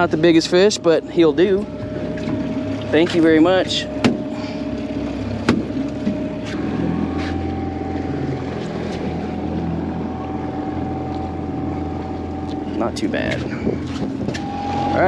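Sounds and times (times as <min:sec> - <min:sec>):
boat motor running: 0:00.0 - 0:15.0.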